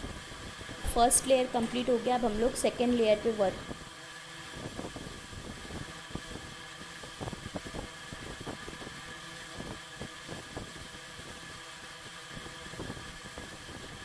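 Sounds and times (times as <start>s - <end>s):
faint hum: 0.0s - 9.8s.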